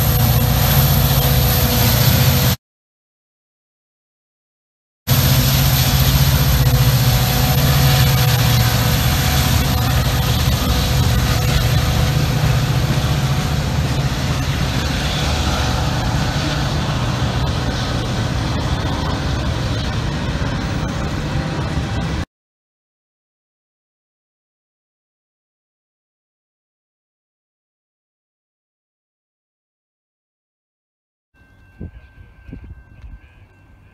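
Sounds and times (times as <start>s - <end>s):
freight cars rolling on rails: 0.0s - 2.6s, 5.1s - 22.2s
locomotive engine drone: 0.0s - 2.6s, 5.1s - 22.3s.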